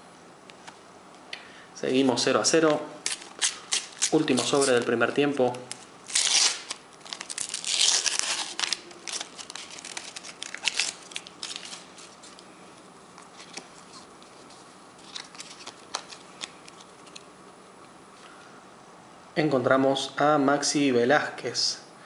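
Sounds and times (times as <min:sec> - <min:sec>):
plastic packet crinkling: 0:03.0 - 0:12.4, 0:13.3 - 0:17.2.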